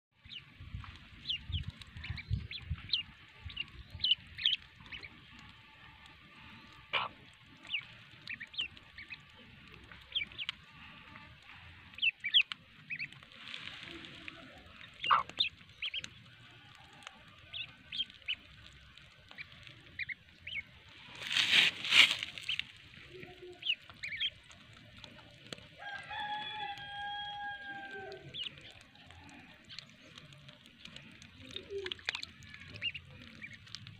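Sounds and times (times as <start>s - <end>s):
ducklings peeping: 0.2s - 33.9s
hen clucking: 6.7s - 25.4s
loud rustle: 20.9s - 22.8s
chicken long drawn-out call: 25.8s - 29.7s.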